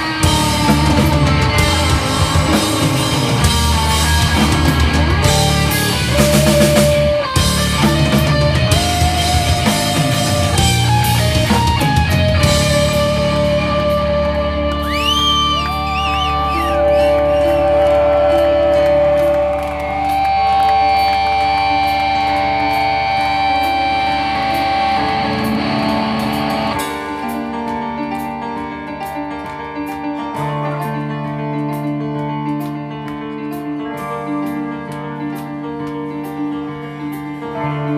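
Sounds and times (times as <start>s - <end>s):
electric guitars with bent notes: 0.0s - 37.9s
rock band playing: 0.0s - 37.9s.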